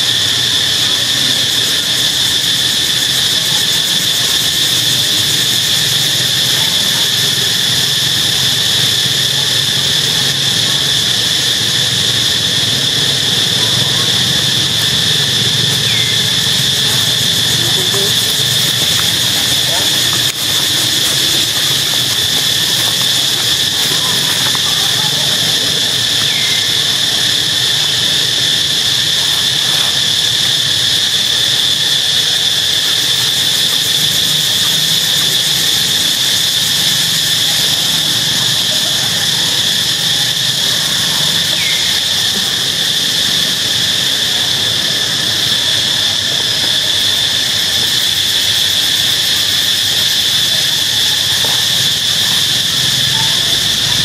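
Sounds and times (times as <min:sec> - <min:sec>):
high-pitched insect drone: 0:00.0 - 0:54.0.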